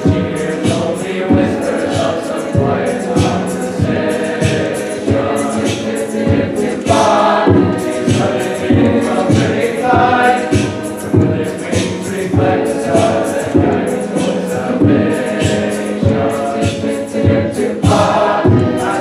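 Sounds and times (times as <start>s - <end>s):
choir singing in harmony: 0.0s - 19.0s
steady beat: 0.0s - 19.0s.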